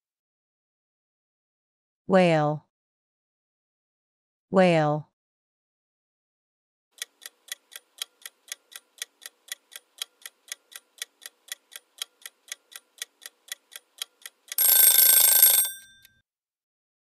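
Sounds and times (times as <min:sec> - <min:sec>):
clock ticking: 0:07.0 - 0:16.0.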